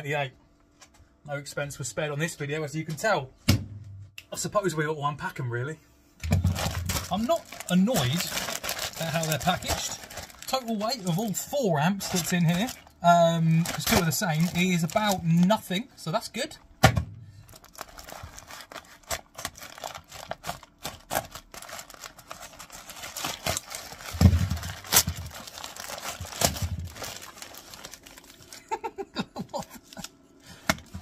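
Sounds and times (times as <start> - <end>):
plastic bag tearing and crinkling: 6.4 - 15.8, 17.4 - 28.8.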